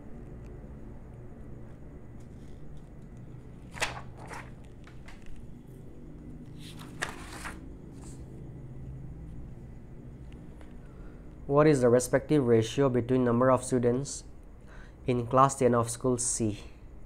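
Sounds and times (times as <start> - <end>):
low steady hum: 0.0 - 17.0
paper pages rustling: 3.6 - 5.4, 6.4 - 8.2.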